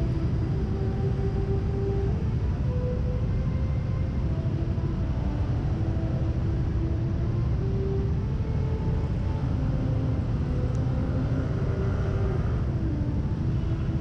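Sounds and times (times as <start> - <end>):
scooter and traffic engines rumbling: 7.6 - 14.0.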